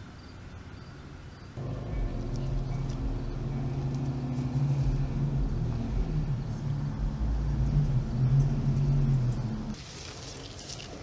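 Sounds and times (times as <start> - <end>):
vehicle engine running: 1.6 - 9.8.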